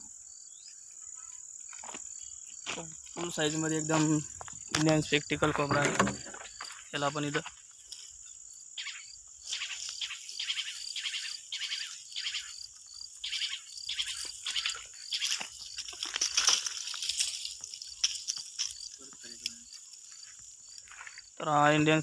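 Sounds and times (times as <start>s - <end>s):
crickets chirping: 0.0s - 22.0s
rustling in dry leaves and grass: 9.4s - 21.4s.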